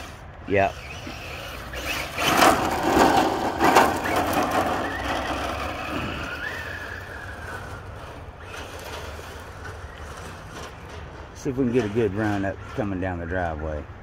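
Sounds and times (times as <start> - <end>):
tyres crunching gravel: 0.0 - 13.9
electric motor whine: 0.7 - 10.2.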